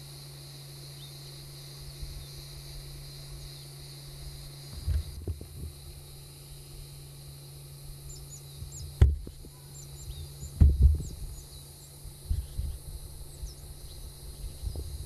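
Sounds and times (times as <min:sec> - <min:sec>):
steady high hiss: 0:00.0 - 0:15.0
faint bird chirps: 0:08.0 - 0:15.0
thumps on microphone: 0:09.0 - 0:09.6, 0:10.6 - 0:11.2.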